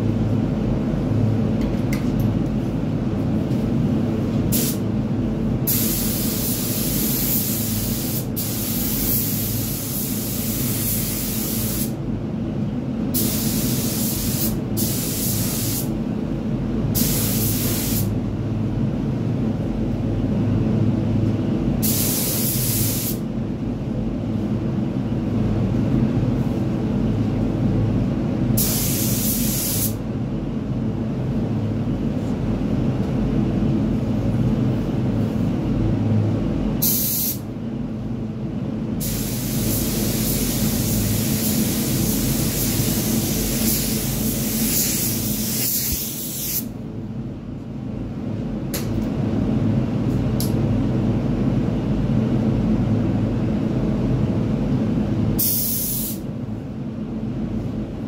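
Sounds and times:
steady low rumble: 0.0 - 55.5
spray gun hissing: 5.7 - 11.9, 13.2 - 15.9, 17.0 - 18.1, 21.8 - 23.2, 28.6 - 30.0, 36.8 - 37.4, 39.0 - 46.7, 55.4 - 56.2.

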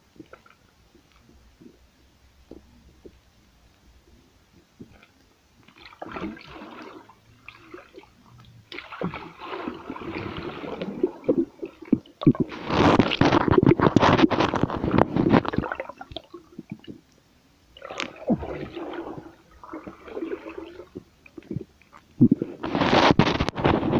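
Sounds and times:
small underwater clicks: 0.0 - 6.1, 10.2 - 17.2
underwater bubbling and rushing water: 0.0 - 23.9.

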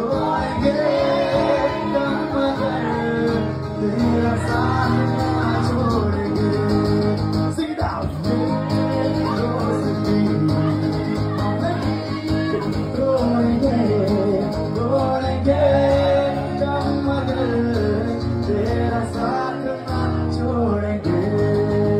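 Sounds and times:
man singing into a microphone: 0.0 - 21.9
strummed acoustic guitar: 0.0 - 21.9.

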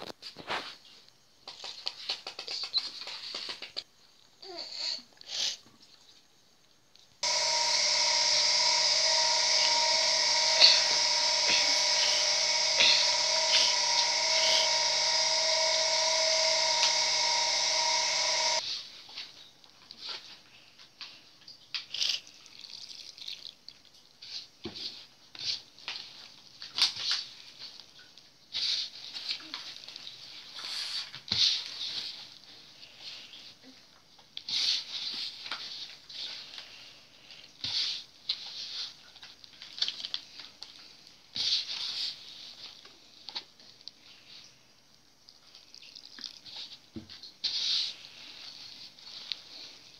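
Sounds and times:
electric motor whine with hiss: 7.2 - 18.6.

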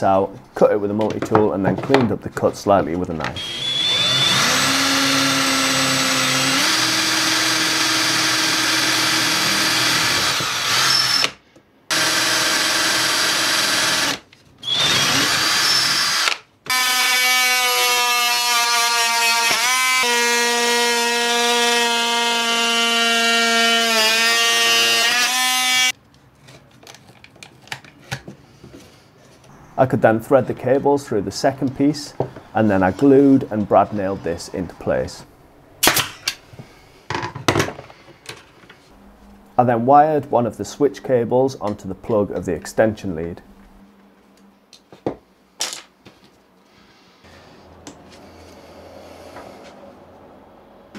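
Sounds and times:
cordless drill boring: 3.4 - 25.9.

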